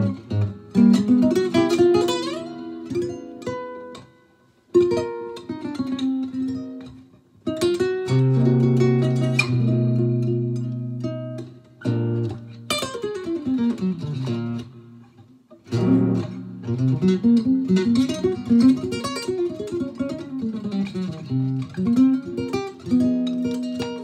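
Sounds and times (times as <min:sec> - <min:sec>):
jazz guitar through amplifier: 0:00.0 - 0:24.0.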